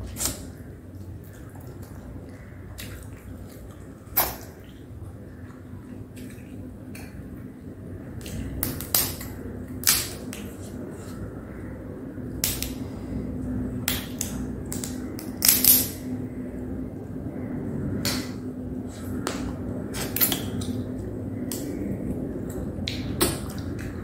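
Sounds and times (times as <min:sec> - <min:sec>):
crab shell cracking: 0:13.9 - 0:16.0.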